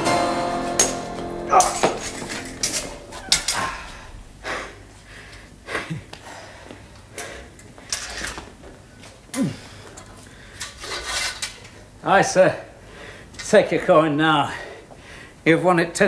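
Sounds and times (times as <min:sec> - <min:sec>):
men breathing hard: 0:01.6 - 0:08.4, 0:09.4 - 0:10.8, 0:12.8 - 0:13.4, 0:14.4 - 0:15.4.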